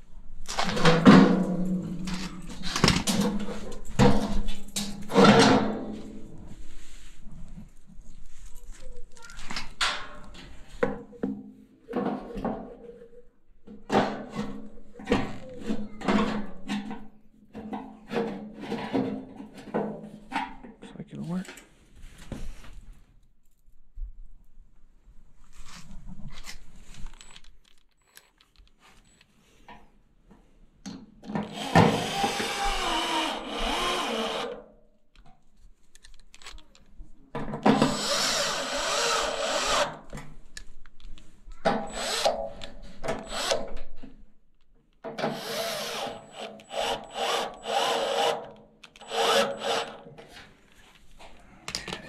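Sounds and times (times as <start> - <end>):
electric ratchet driving bolts: 31.4 - 34.6, 37.8 - 40.0, 41.8 - 42.5, 43.2 - 43.7, 45.2 - 50.1.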